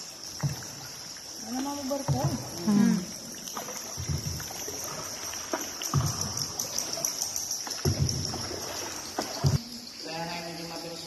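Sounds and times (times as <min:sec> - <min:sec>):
paddle strokes splashing: 0:00.0 - 0:09.6
steady high hiss: 0:09.6 - 0:11.0.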